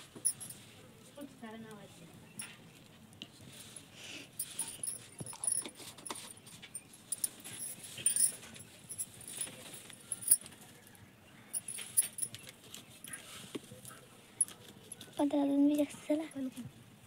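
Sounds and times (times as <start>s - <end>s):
bangles jingling and clinking: 0.0s - 0.6s, 4.4s - 10.5s, 11.5s - 13.2s.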